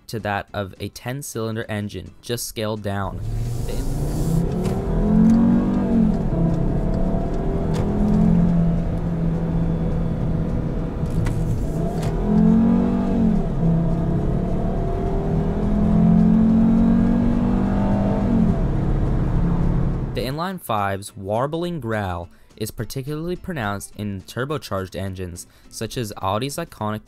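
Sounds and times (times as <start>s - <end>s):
car engine accelerating: 3.1s - 20.2s.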